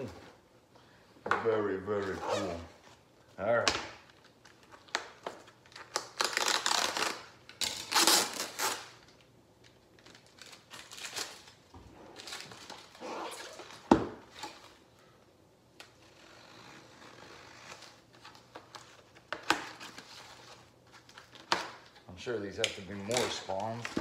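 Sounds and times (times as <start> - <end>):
packing material rustling: 4.1 - 14.8, 22.9 - 24.0.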